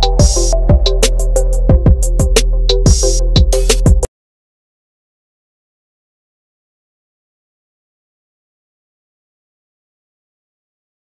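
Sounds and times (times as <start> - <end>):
electronic music with drum beat: 0.0 - 4.1.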